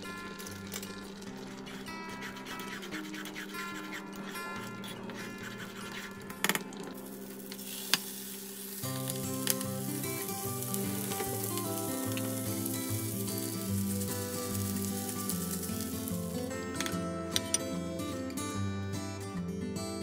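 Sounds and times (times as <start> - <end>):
background music: 0.0 - 20.0
food sizzling in a pan: 7.0 - 16.9.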